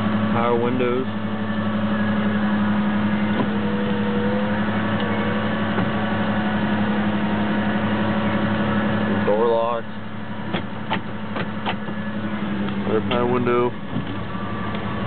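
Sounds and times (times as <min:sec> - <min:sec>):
car engine idling: 0:00.0 - 0:15.0
power window motor whining: 0:01.2 - 0:09.0.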